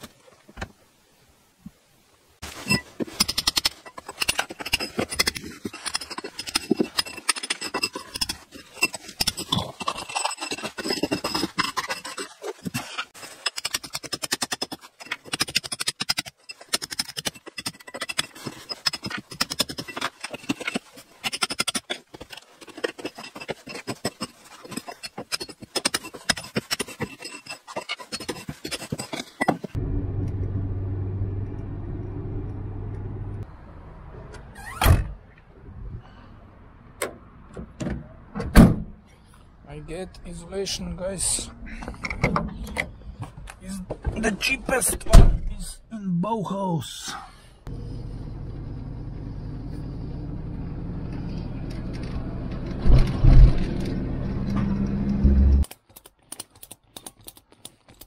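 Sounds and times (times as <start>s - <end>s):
hand tool scraping plaster: 3.0s - 29.8s
road noise inside moving car: 29.8s - 33.4s, 47.7s - 55.6s.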